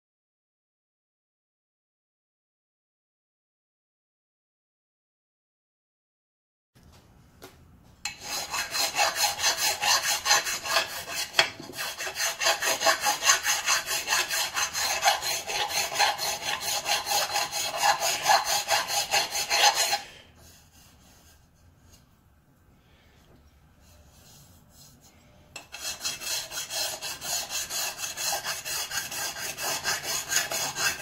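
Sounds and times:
hand file scraping metal: 8.1 - 22.0, 23.9 - 31.0.

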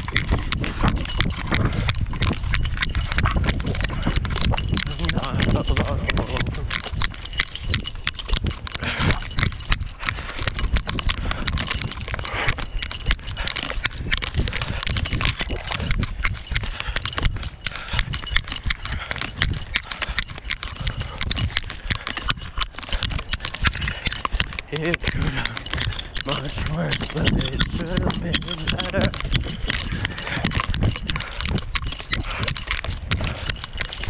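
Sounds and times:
footsteps on concrete: 9.9 - 30.6, 31.2 - 34.0.

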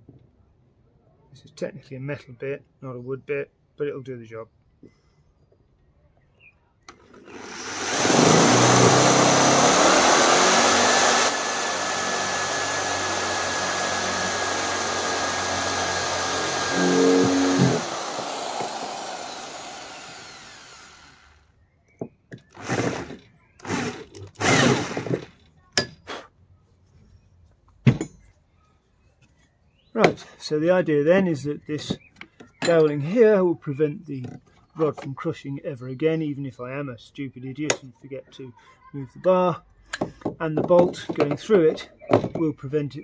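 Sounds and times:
electric drill whining: 6.9 - 21.5, 22.6 - 25.2.

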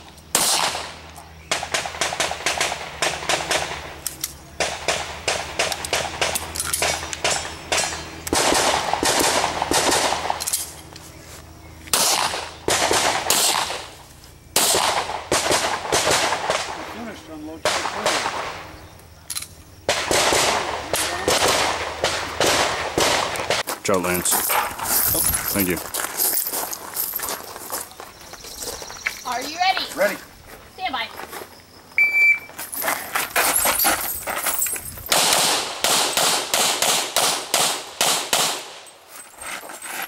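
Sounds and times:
handgun shots: 35.1 - 38.8.

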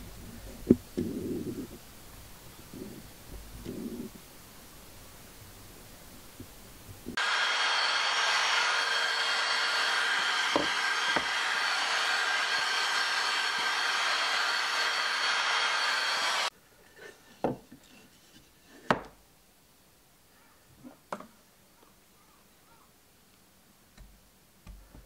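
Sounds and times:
handheld vacuum cleaner running: 7.1 - 16.5.

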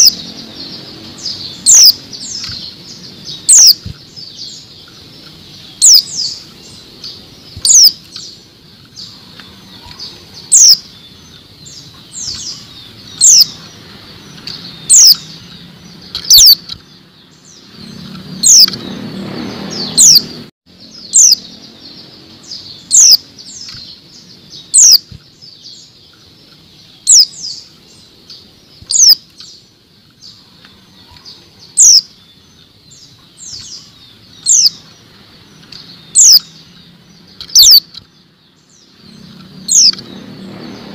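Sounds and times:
bird high downward call notes: 0.0 - 13.8, 37.5 - 37.9.

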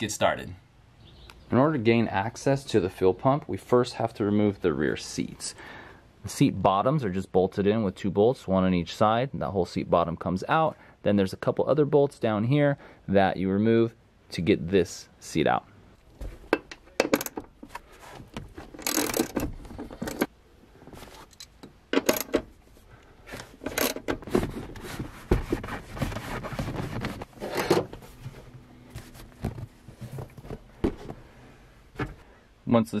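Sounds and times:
rubbing and scraping: 22.1 - 31.4.

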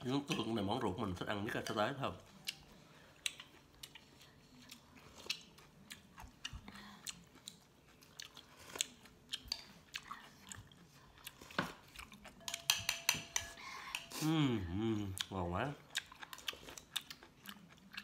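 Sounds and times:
person chewing food: 2.2 - 18.0
chopsticks clicking against bowls: 12.4 - 14.2.

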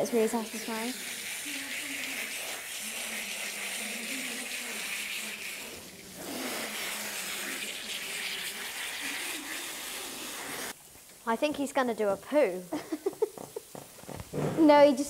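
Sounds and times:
hose water spraying: 0.0 - 10.8.

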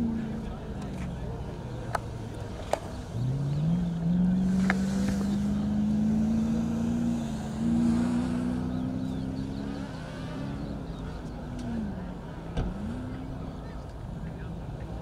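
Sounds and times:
engine revving high: 3.0 - 13.7.

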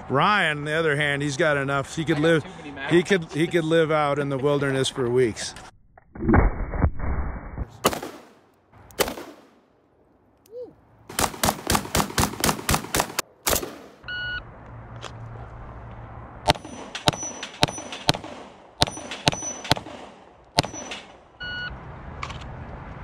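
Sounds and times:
pistol shots: 7.8 - 8.4, 9.0 - 9.6, 11.1 - 14.0, 16.5 - 21.2
rifle shots: 7.8 - 8.4, 9.0 - 9.6, 11.1 - 14.1, 16.5 - 21.2
steel plates clanging: 16.5 - 18.2, 18.8 - 19.8.

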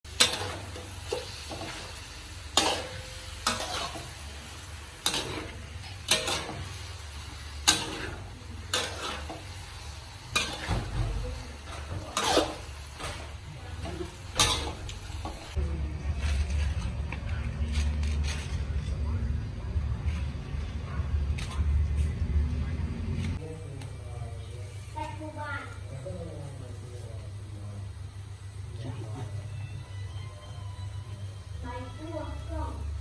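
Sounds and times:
food sizzling: 0.0 - 15.6
metal spatula scraping wok: 0.1 - 18.9.

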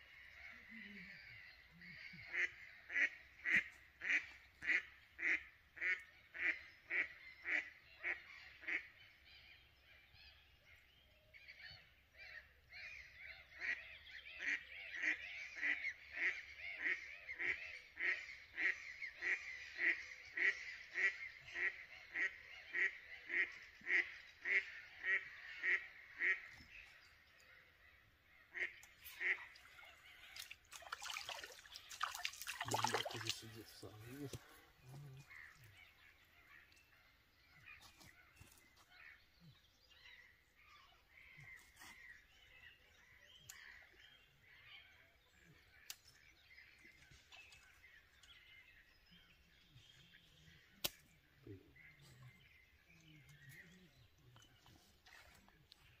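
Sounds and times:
waterbird harsh calls: 28.5 - 36.7.

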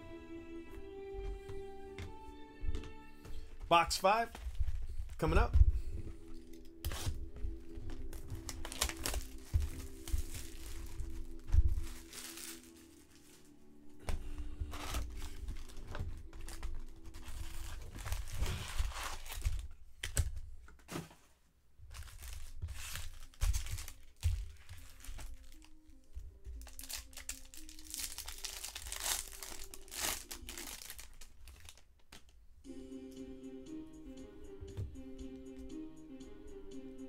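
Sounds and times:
soft background music: 0.0 - 19.7, 21.9 - 31.8, 32.6 - 37.0
plastic and foil wrapping tearing: 6.4 - 7.2, 7.9 - 13.5, 14.6 - 20.3, 21.9 - 25.8, 26.5 - 32.3.

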